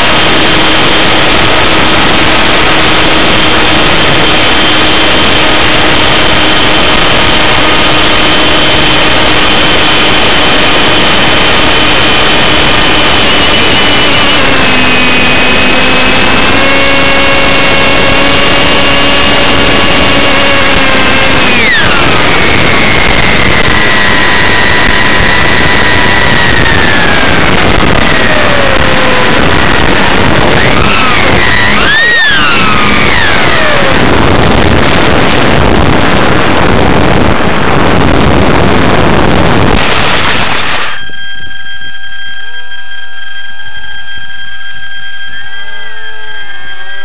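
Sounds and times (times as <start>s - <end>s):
wind rush on microphone: 0.0s - 41.0s
electric motor propeller whine: 0.0s - 47.0s
rush of air over camera: 21.6s - 41.0s.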